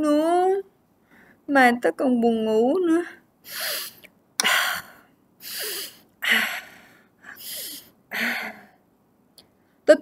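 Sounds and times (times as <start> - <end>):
woman breathing heavily: 1.0 - 1.5, 3.4 - 8.9.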